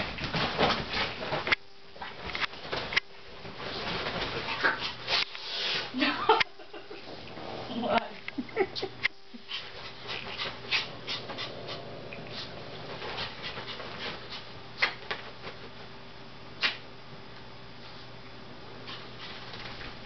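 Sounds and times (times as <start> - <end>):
faint steady hum: 0.0 - 20.0
dog panting: 9.4 - 14.5.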